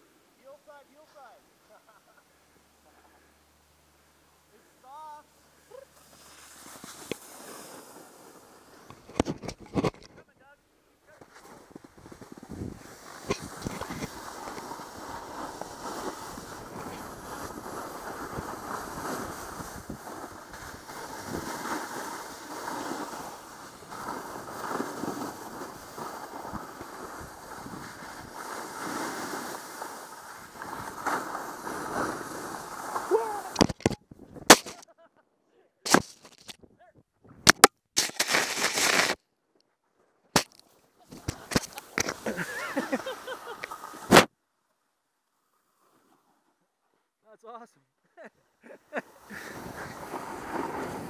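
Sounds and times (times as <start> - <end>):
snowboard scraping over snow: 5.7 - 9.8, 11.1 - 33.8, 38.2 - 39.2, 41.1 - 44.3, 48.9 - 51.0
camera knocks and thumps in snow: 8.8 - 10.3, 11.1 - 21.9, 33.5 - 34.8, 35.9 - 36.6, 37.4 - 39.2, 40.4 - 43.0, 44.0 - 44.3
wind on microphone: 16.2 - 21.5, 33.5 - 34.5.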